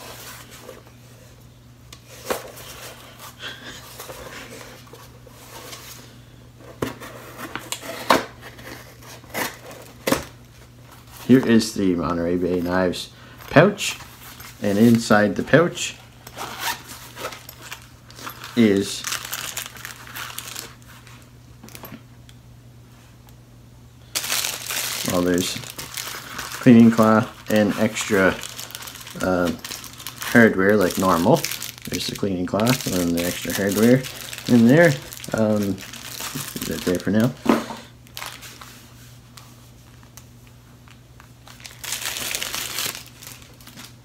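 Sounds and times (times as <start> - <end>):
pouch rustling: 16.2 - 21.0, 24.1 - 37.2.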